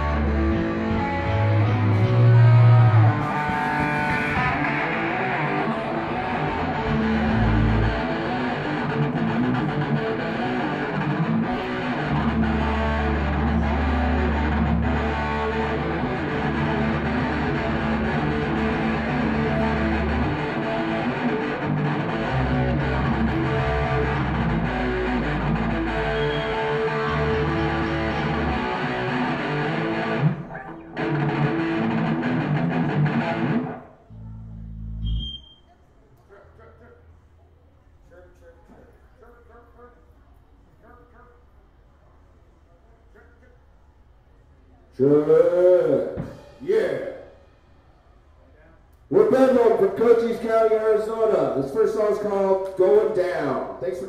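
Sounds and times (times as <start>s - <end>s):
live punk rock band: 0.0s - 33.8s.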